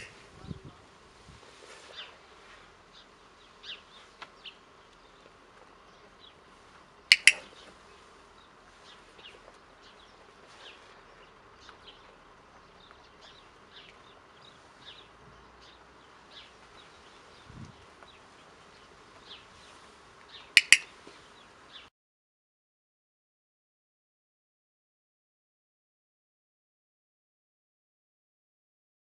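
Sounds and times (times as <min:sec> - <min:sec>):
training clicker double click: 0:07.1 - 0:07.5, 0:20.6 - 0:20.9.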